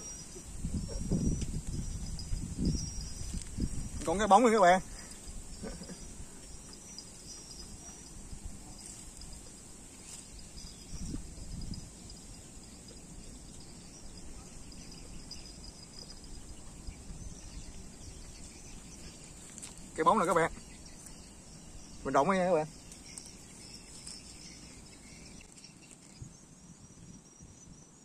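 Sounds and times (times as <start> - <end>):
wind rumble on microphone: 0.0 - 19.6
insects chirring: 0.0 - 28.0.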